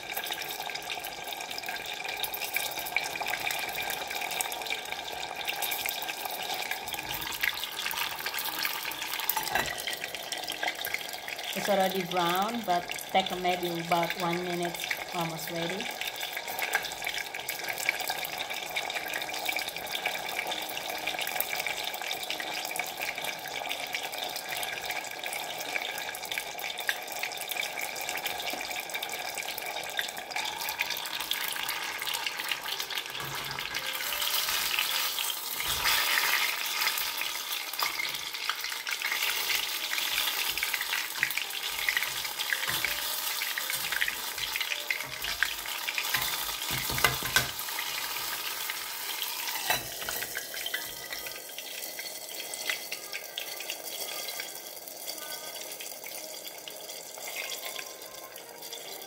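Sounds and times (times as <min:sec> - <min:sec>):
deep-frying sizzle in oil: 0:00.0 - 0:59.0
lid and spatula knocking pan: 0:46.1 - 0:47.6.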